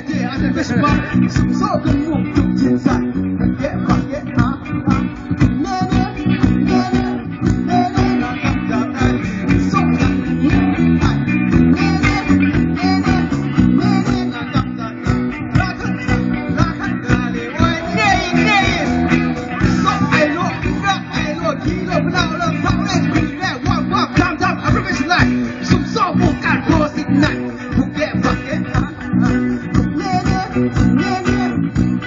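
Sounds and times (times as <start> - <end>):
person singing: 0.0 - 31.8
bass: 0.0 - 32.0
guitar: 0.0 - 32.0
drum beat: 9.5 - 32.0.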